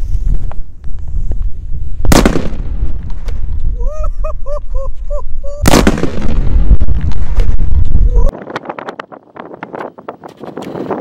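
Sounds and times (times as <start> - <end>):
wind buffeting microphone: 0.0 - 11.0
dynamite explosion: 1.8 - 3.7, 5.6 - 8.3.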